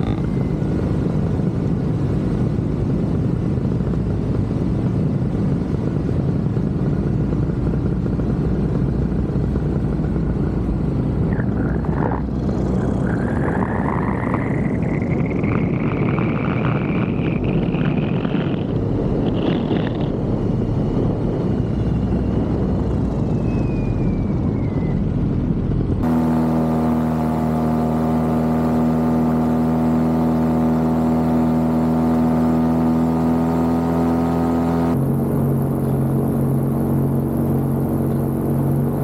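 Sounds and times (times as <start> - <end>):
small aircraft motor: 0.0 - 39.0
faint whistling tone: 20.4 - 25.2.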